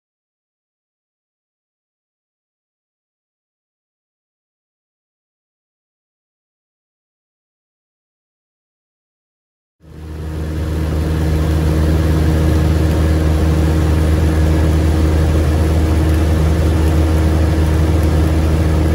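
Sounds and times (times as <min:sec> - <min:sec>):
propeller plane engine drone: 0:09.8 - 0:18.9.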